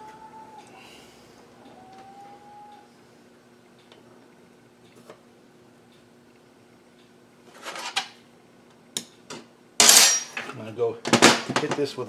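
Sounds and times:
faint hum: 0:00.0 - 0:11.1
metal parts clinking: 0:09.8 - 0:10.5.

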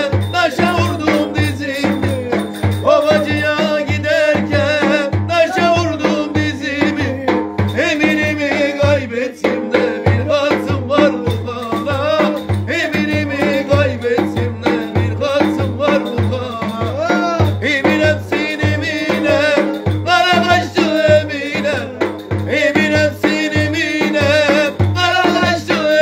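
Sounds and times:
large bass drum beating: 0:00.0 - 0:26.0
man singing folk tune: 0:00.0 - 0:26.0.

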